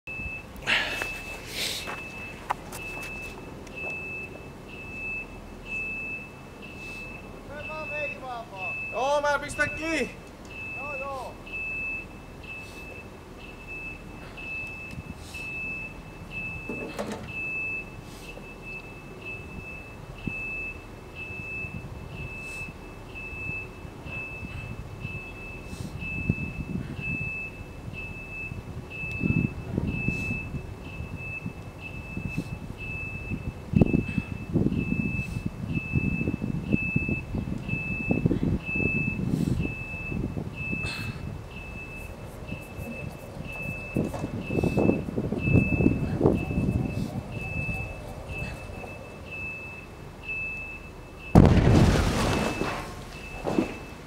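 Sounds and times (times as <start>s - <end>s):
electronic warning beeper: 0.1s - 54.0s
electronic beeper beeping: 41.5s - 53.9s.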